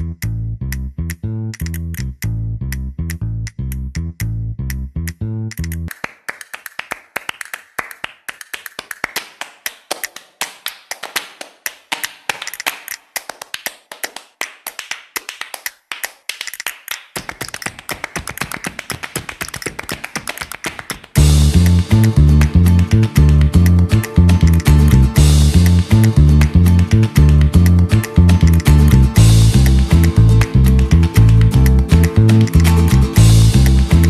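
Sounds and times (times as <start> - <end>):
dance shoes tapping on stage floor: 5.9 - 21.2.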